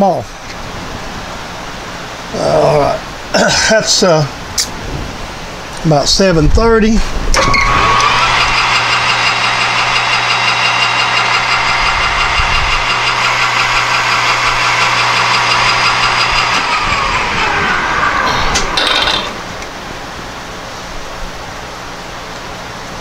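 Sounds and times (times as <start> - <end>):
lathe motor hum: 7.4 - 20.3
lathe gear whine: 7.4 - 20.5.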